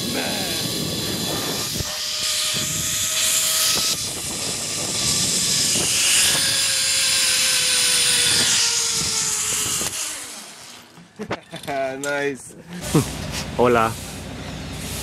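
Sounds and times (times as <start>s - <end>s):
wind rushing over microphone: 0.0s - 10.1s
zipline pulleys whining on cable: 0.0s - 11.6s.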